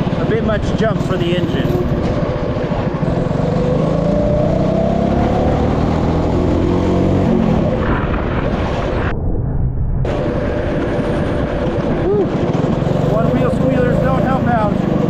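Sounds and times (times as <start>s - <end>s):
small engine revving: 3.0s - 7.8s.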